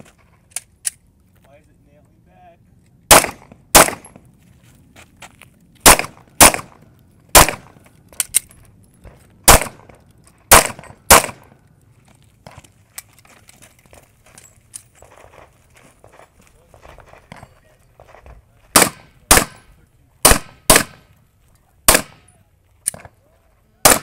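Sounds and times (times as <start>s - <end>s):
pistol shots: 3.1s - 4.2s, 5.8s - 7.8s, 9.4s - 11.6s, 18.7s - 21.1s, 21.9s - 22.3s.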